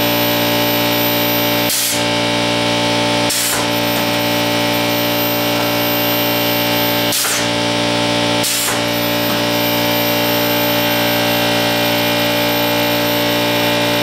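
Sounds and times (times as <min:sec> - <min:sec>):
steady hum: 0:00.0 - 0:14.0
compressed air hisses: 0:07.1 - 0:07.6.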